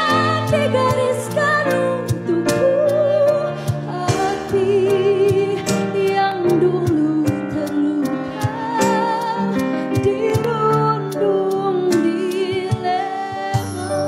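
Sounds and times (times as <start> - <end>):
woman singing into a microphone: 0.0 - 14.0
band accompaniment with drum beats: 3.6 - 4.7.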